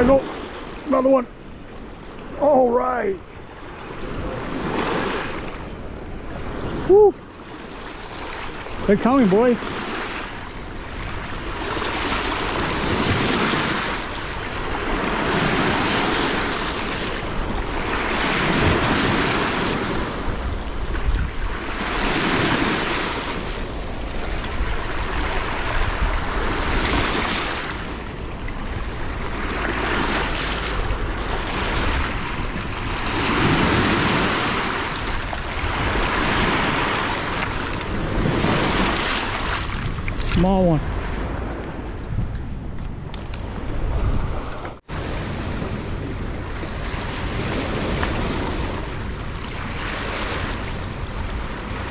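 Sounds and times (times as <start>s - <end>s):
wind buffeting microphone: 0.0s - 51.9s
waves washing onto rocky shore: 2.0s - 41.6s.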